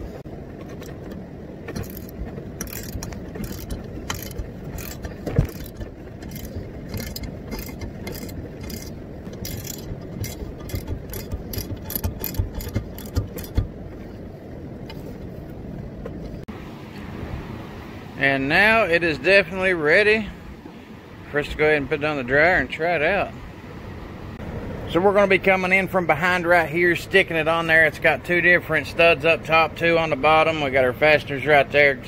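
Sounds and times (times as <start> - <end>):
low background rumble: 0.0 - 18.1
ratchet clicking: 0.6 - 13.8.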